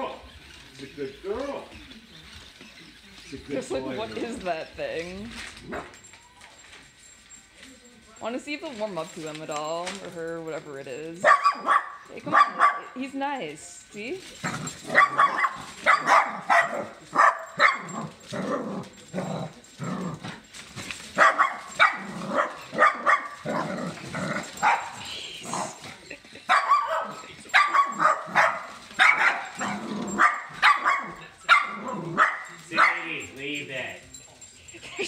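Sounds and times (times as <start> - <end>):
small dog barking: 11.2 - 13.0, 14.4 - 18.6, 21.2 - 25.1, 26.4 - 33.2.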